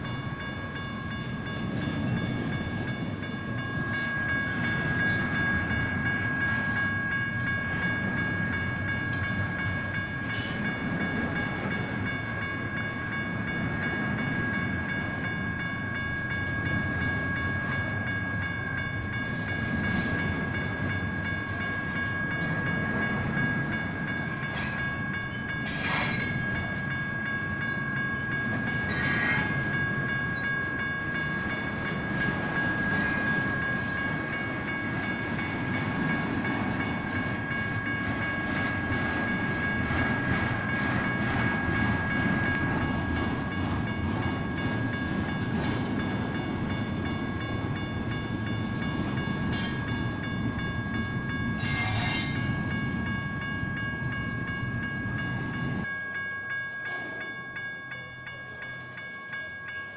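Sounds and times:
crossing bells ringing: 0.0 - 59.9
freight train rumbling past: 0.0 - 59.9
train cars clanking: 18.8 - 59.9.

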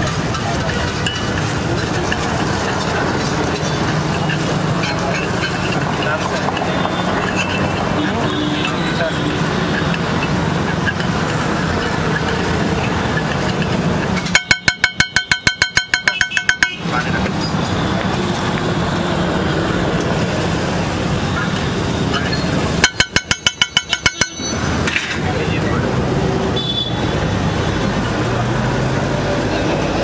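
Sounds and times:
metal masher clanking on griddle: 0.0 - 17.6, 22.1 - 25.3
street traffic: 0.0 - 30.0.

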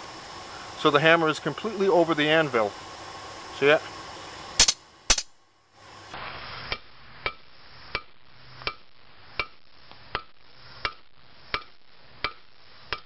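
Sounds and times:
hammer striking steel on anvil: 9.4 - 13.0.

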